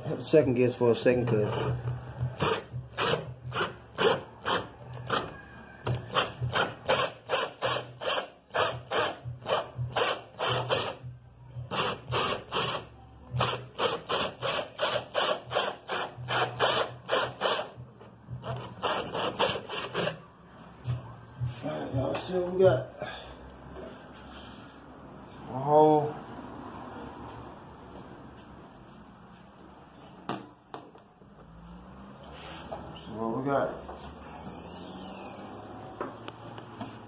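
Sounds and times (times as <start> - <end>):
hand tool rasping: 1.3 - 11.0, 13.4 - 17.8, 18.4 - 20.2.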